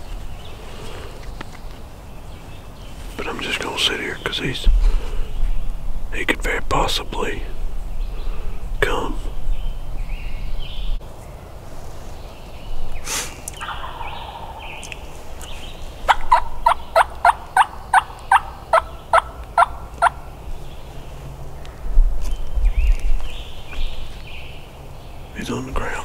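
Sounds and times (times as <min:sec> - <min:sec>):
turkey yelping: 0:13.6 - 0:15.0, 0:16.1 - 0:20.2.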